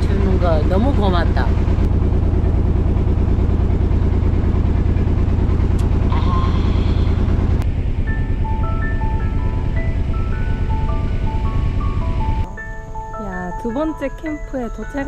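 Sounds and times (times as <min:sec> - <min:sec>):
boat engine humming: 0:00.0 - 0:15.0
light background music: 0:08.0 - 0:15.0.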